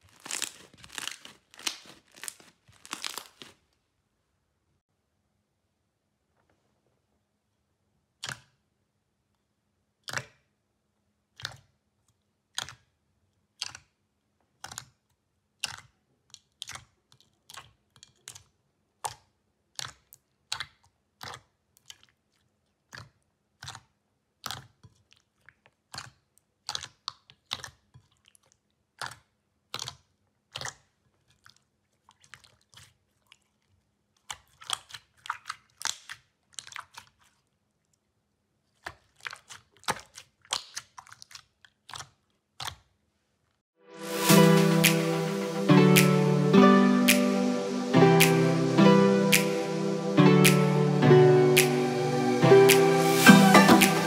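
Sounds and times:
slime squishing with sticky pops: 0:00.0 - 0:03.6, 0:10.0 - 0:10.5, 0:11.3 - 0:33.6, 0:34.2 - 0:37.4, 0:38.7 - 0:43.0.

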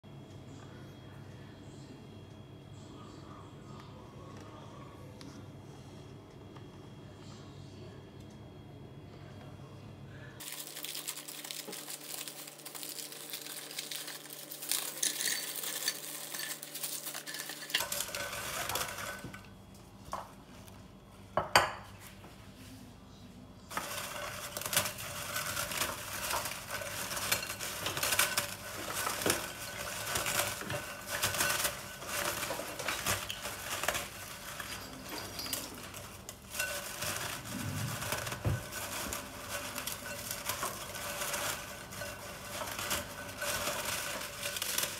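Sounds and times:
utensils clinking against dishes: 0:10.4 - 0:19.5, 0:23.7 - 0:44.9.

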